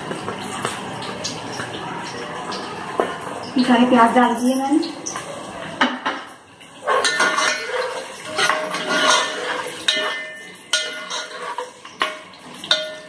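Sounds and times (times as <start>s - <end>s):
onions frying in oil: 0.0s - 13.0s
ladle clanking against pot: 5.8s - 13.0s.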